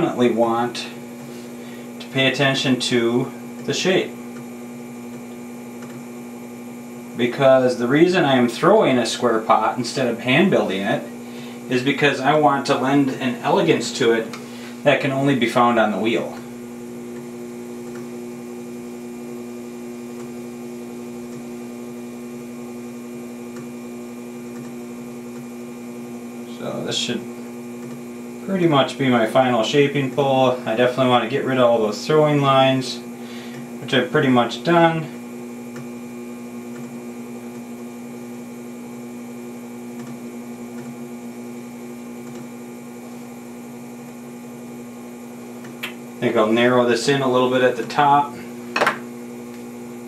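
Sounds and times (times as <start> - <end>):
potter's wheel humming: 0.0 - 50.0.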